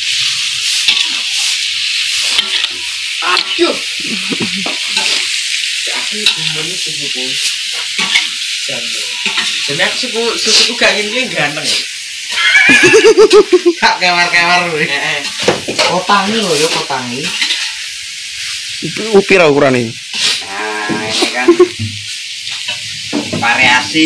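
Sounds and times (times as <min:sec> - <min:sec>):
metal spatula scraping a wok: 0:00.0 - 0:04.0, 0:04.6 - 0:06.6, 0:07.4 - 0:10.8, 0:15.1 - 0:18.6, 0:20.0 - 0:23.4
food sizzling in a wok: 0:00.0 - 0:24.0.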